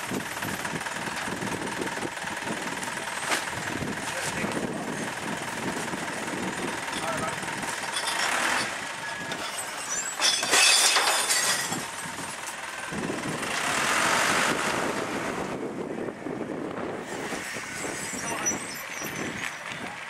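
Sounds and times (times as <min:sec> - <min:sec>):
truck engine running: 0:00.0 - 0:20.0
truck moving off: 0:00.0 - 0:20.0
recycling clattering crash: 0:06.9 - 0:12.2.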